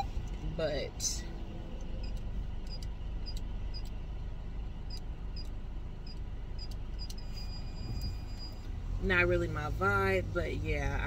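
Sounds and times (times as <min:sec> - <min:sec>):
road and engine rumble: 0:00.0 - 0:11.0
light regular ticking: 0:01.8 - 0:04.0, 0:04.8 - 0:07.3.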